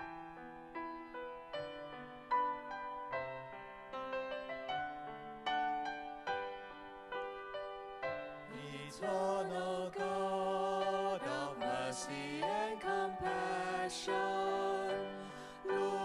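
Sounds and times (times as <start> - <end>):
piano playing: 0.0 - 16.0
person singing: 8.5 - 16.0.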